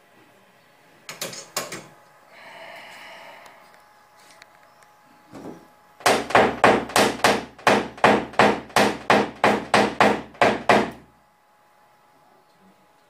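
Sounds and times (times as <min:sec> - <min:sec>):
hammer tapping sheet metal: 0:06.0 - 0:11.0.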